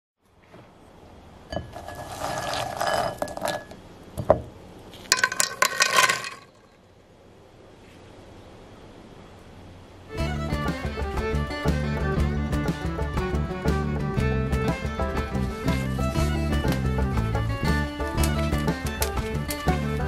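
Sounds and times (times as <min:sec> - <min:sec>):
beans clattering on metal mould: 0:01.5 - 0:06.8, 0:17.9 - 0:20.0.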